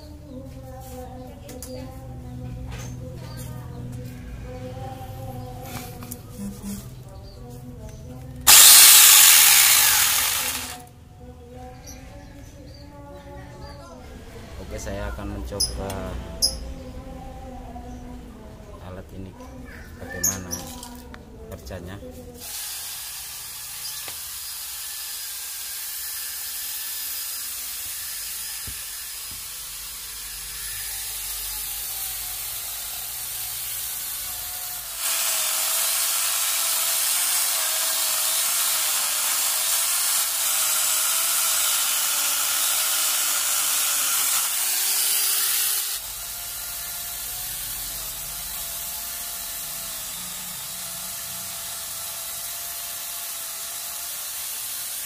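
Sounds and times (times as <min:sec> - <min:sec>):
angle grinder motor whine: 0:08.4 - 0:10.8, 0:23.2 - 0:55.0
chainsaw chain cutting log: 0:08.4 - 0:10.8, 0:22.4 - 0:32.2, 0:33.2 - 0:55.0.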